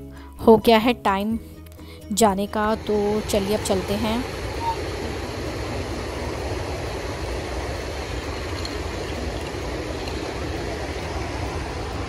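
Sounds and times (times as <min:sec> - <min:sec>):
stream water rushing: 0:02.7 - 0:12.0.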